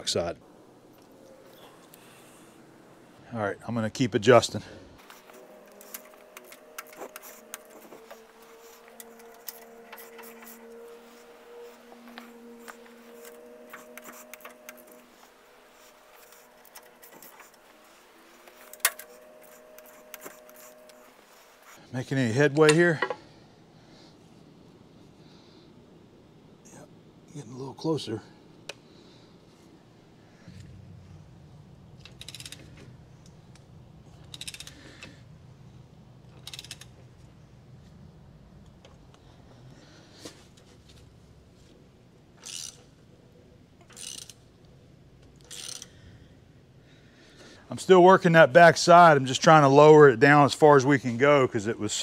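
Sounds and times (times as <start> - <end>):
faint steady hum: 0.0 - 52.0
wrench clicking on metal screws: 32.0 - 32.8, 34.2 - 35.1, 36.4 - 37.0, 42.4 - 42.9, 43.8 - 44.4, 45.4 - 46.0.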